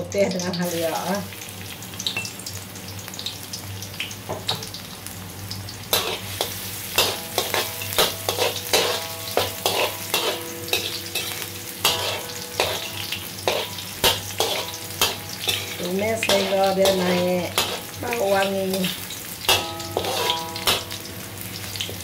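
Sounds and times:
food sizzling in hot oil: 0.0s - 22.0s
spatula scraping a wok: 5.9s - 22.0s.

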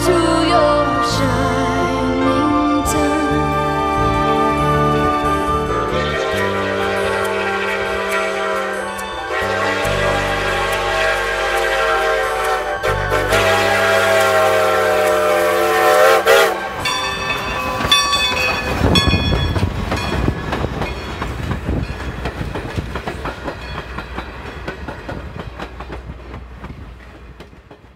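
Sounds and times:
steam locomotive whistle: 0.4s - 19.2s
train wheels clicking over rail joints: 6.3s - 27.9s.

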